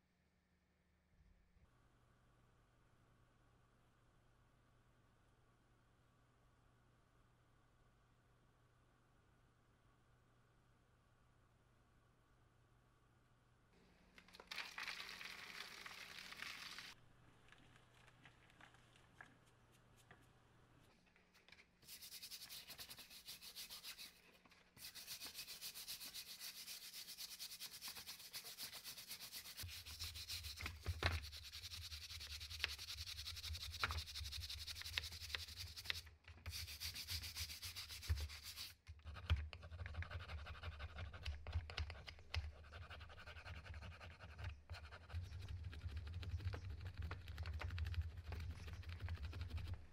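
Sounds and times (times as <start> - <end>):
water pouring into plastic tub: 14.2 - 17.0
stiff brush scrubbing plastic: 21.8 - 38.7.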